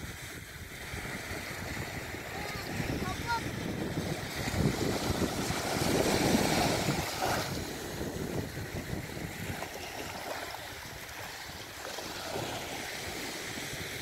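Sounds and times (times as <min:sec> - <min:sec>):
small waves washing on beach: 0:00.0 - 0:14.0
wind buffeting microphone: 0:00.0 - 0:14.0.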